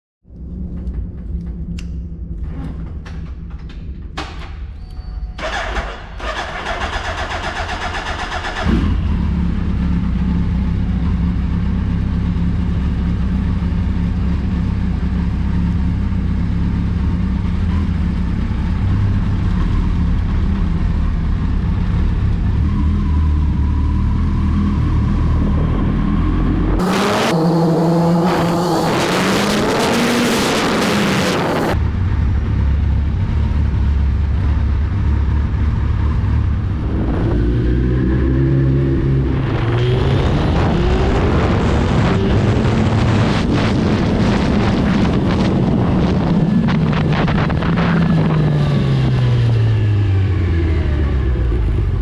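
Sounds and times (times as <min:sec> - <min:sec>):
motorcycle engine starting and idling: 0:00.4 - 0:26.0
motorcycle revving and pulling away: 0:05.4 - 0:52.0.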